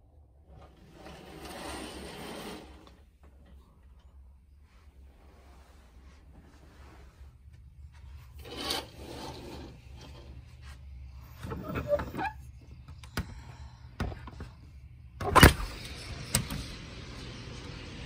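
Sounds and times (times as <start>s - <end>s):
curtain rubbing and sliding: 0.4s - 3.2s, 4.6s - 7.4s, 8.0s - 10.8s, 15.7s - 18.0s.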